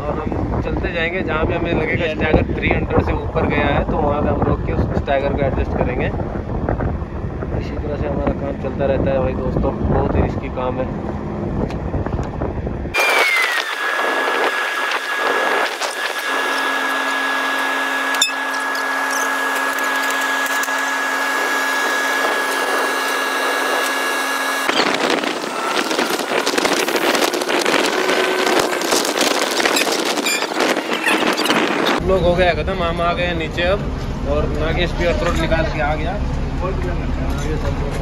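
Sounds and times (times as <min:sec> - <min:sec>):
wind on microphone: 0:00.0 - 0:36.2
high mechanical whine: 0:00.0 - 0:38.0
rail vehicle running and rattling: 0:24.8 - 0:38.0.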